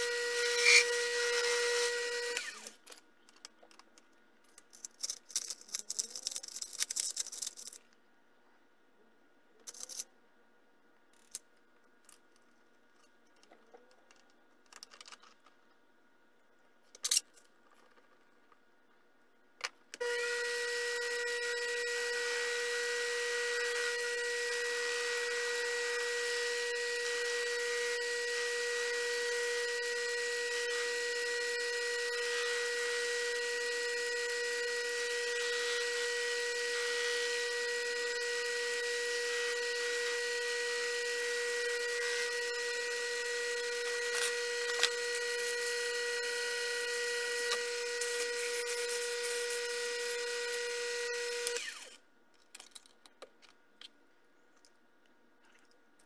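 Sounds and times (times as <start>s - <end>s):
lathe whining: 0.0s - 2.7s, 20.0s - 52.0s
metal parts clicking and knocking: 2.8s - 8.0s, 9.6s - 10.1s, 11.1s - 15.7s, 52.3s - 53.6s.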